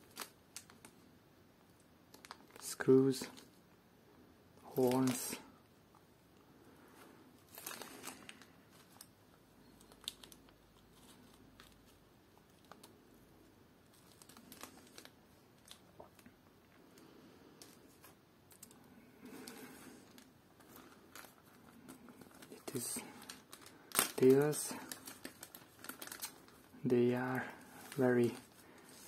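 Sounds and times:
plastic bags crinkling: 0.0 - 1.0, 2.1 - 3.5, 4.7 - 5.5, 7.4 - 12.9, 13.8 - 16.8, 17.6 - 29.0.

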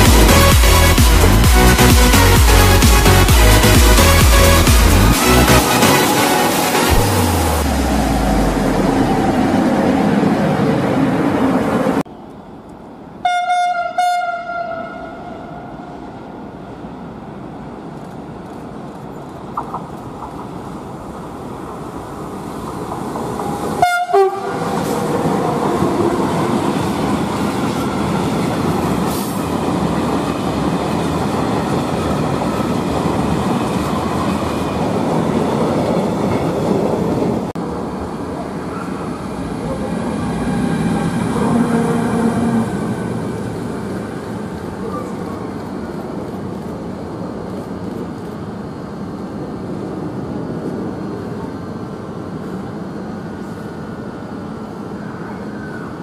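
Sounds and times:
freight train rolling past: 0.0 - 56.0
train horn: 13.2 - 16.0, 23.8 - 25.0, 41.2 - 43.0.

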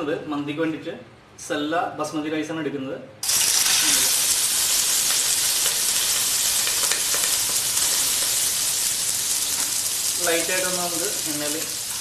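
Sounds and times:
rice sizzling in hot oil: 3.2 - 12.0.

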